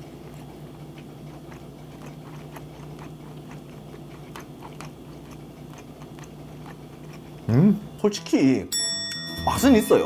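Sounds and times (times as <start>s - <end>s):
person chewing: 0.0s - 7.6s
steady low hum: 0.0s - 10.0s.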